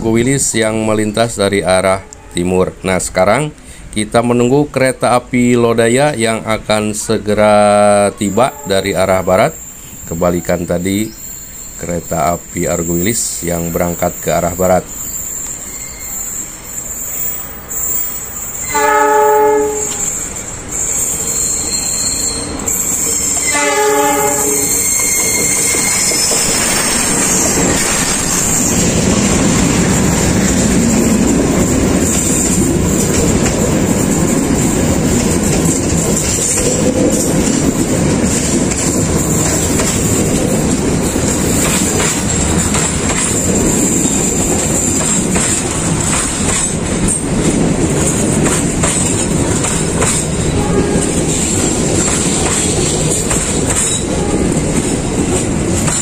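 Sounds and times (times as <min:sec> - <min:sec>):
train rumble: 0:00.0 - 0:56.0
train horn blasts: 0:08.4 - 0:09.0, 0:18.6 - 0:20.3, 0:23.4 - 0:25.2, 0:50.5 - 0:51.4, 0:54.0 - 0:54.6
train wheels clacking on rails: 0:12.7 - 0:56.0.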